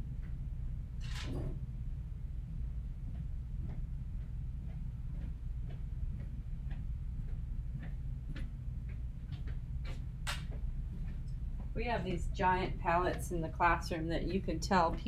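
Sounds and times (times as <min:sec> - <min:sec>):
low room hum: 0:00.0 - 0:15.0
footsteps: 0:03.2 - 0:15.0.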